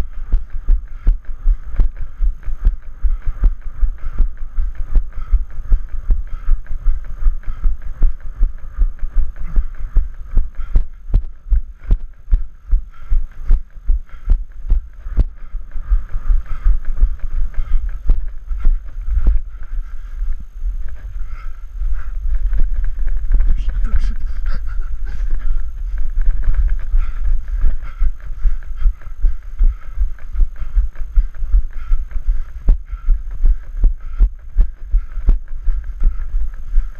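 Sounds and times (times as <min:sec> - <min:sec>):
footsteps running on dirt path: 0:00.0 - 0:36.9
wind rumble on microphone: 0:14.7 - 0:36.9.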